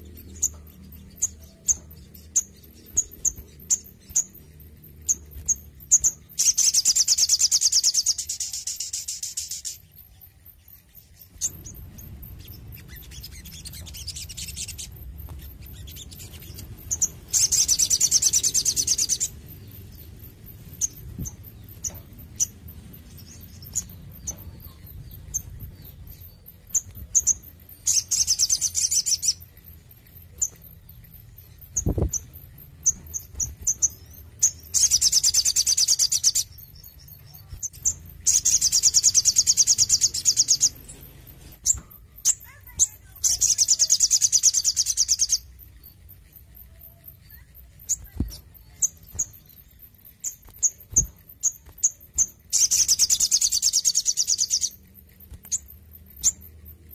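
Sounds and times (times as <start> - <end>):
bird singing high trills: 0.0 - 56.9.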